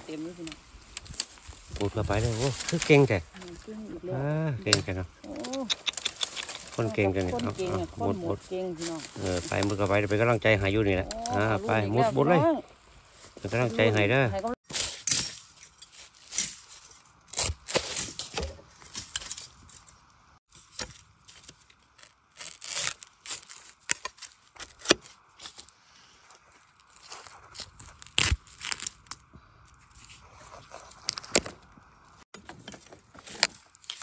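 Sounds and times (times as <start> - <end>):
dry bamboo litter crackling: 0.0 - 32.3, 33.0 - 34.0
sharp snaps and cracks: 4.7 - 7.5, 21.2 - 25.7, 26.7 - 32.2, 33.2 - 34.0.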